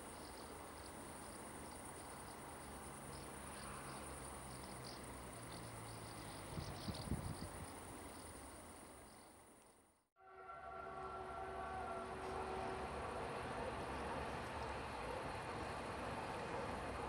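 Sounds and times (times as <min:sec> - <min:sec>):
crickets chirping: 0:00.0 - 0:09.9
electric locomotive hum: 0:00.0 - 0:17.0.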